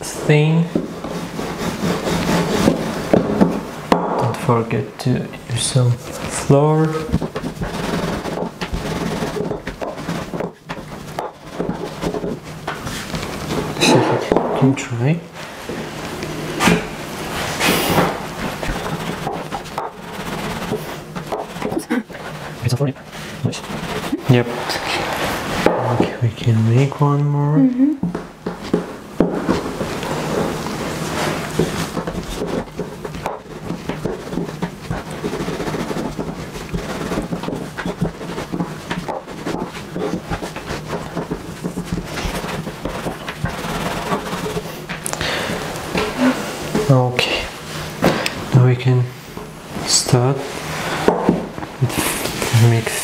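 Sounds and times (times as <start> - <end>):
rolling pin rolling dough: 0.0 - 53.0
light knocks and rubbing: 28.0 - 48.5.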